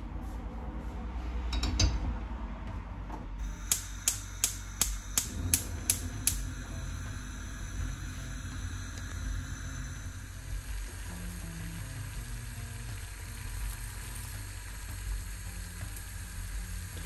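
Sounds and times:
gas hob igniter clicking: 3.4s - 17.0s.

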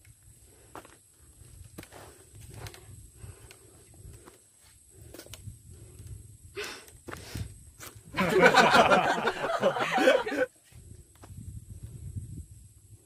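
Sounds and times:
woman laughing: 8.2s - 10.5s.

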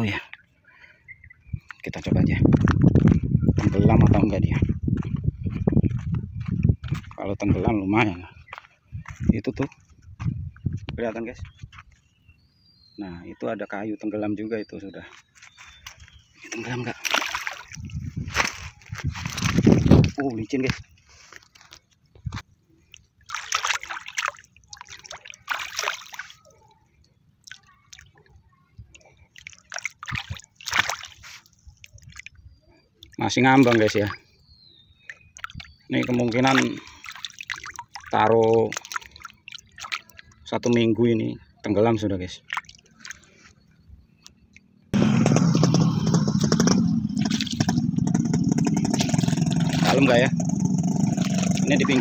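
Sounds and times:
water splashing and sloshing: 15.4s - 34.4s, 35.0s - 40.7s, 42.2s - 52.0s
small engine running: 45.0s - 52.0s.

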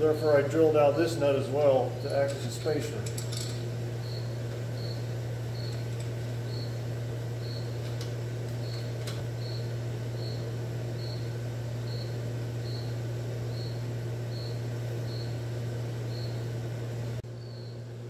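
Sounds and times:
steady low hum: 0.0s - 18.0s
cricket chirping: 3.3s - 7.9s, 8.6s - 15.4s, 16.1s - 16.5s, 17.4s - 17.9s.

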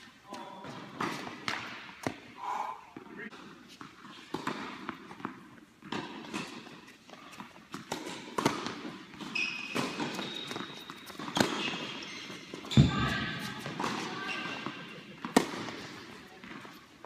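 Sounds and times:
tennis ball bouncing: 3.4s - 12.9s, 13.7s - 16.8s
racket hitting ball: 3.9s - 6.8s, 7.4s - 12.8s, 13.7s - 16.7s
shoe squeaks: 9.2s - 14.8s.

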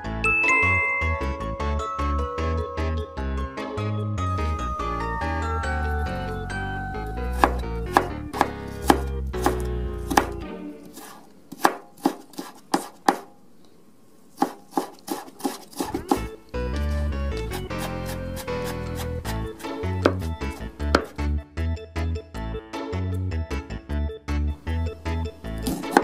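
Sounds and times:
background music: 0.0s - 11.4s, 15.9s - 26.0s
knife chopping on plastic board: 7.3s - 13.3s, 14.4s - 21.2s, 25.6s - 26.0s.

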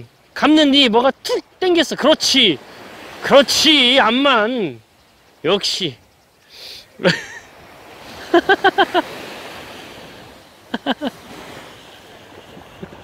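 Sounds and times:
waves breaking on beach: 0.0s - 13.0s
short pitched calls: 2.6s - 8.2s.

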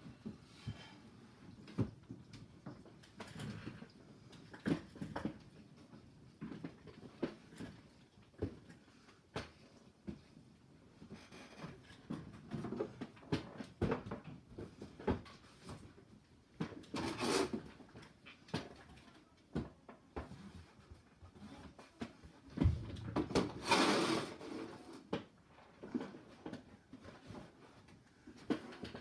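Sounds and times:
rustling scrape: 16.9s - 17.7s, 23.5s - 25.1s.

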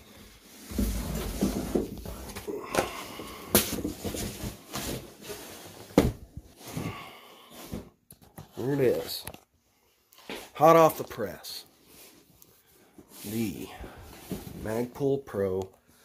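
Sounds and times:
cardboard rustling: 0.2s - 2.5s, 3.2s - 6.9s
box scraping out of carton: 0.5s - 2.4s.

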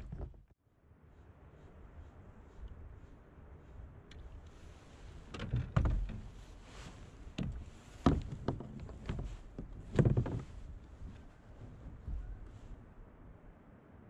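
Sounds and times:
fishing gear knocking in a kayak: 7.4s - 10.5s.

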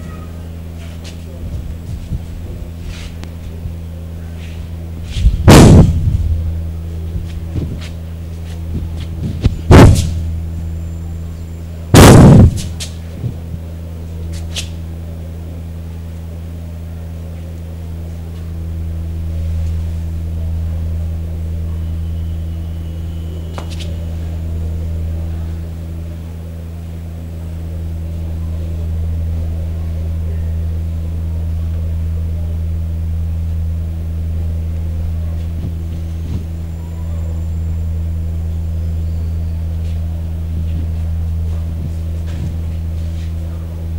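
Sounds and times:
steady low hum: 0.0s - 43.9s
loud thuds: 5.1s - 6.4s, 7.2s - 10.5s, 11.9s - 13.6s, 40.6s - 43.2s.

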